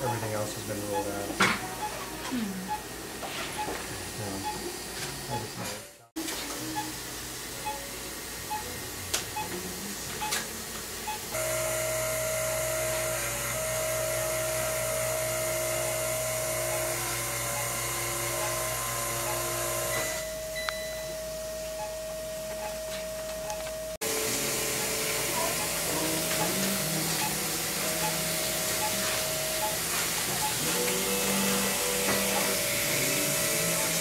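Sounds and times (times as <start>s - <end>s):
motorised hiss with humming whine: 6.2s - 20.6s, 23.8s - 34.0s.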